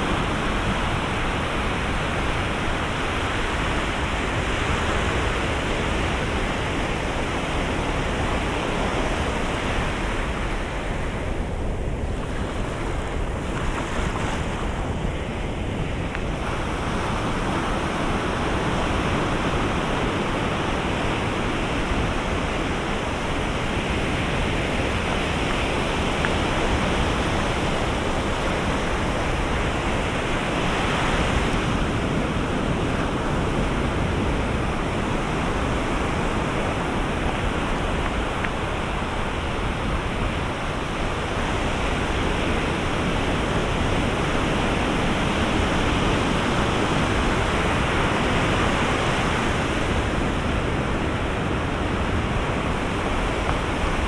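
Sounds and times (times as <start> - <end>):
surf breaking on beach: 0.0 - 54.0.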